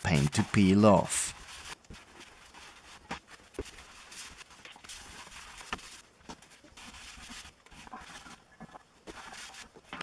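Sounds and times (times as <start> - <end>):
cloth rubbing on metal plate: 0.0 - 10.0.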